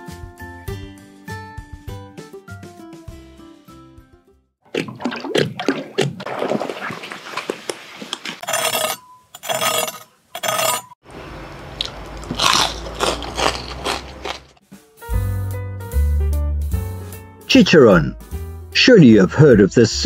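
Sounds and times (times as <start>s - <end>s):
crunchy bites and chewing: 11.8s - 14.6s.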